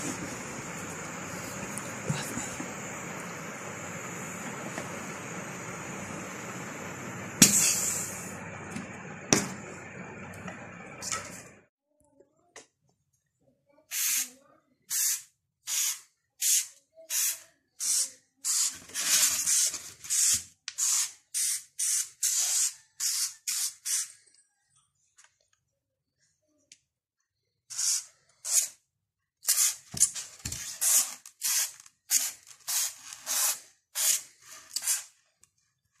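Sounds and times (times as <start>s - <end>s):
spray bottle hissing puffs: 0.0s - 8.6s.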